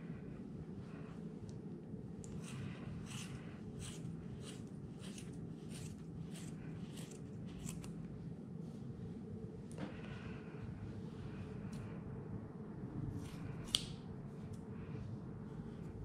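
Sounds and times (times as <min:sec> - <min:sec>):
low background hum: 0:00.0 - 0:16.0
scissors snipping wool: 0:02.2 - 0:08.0.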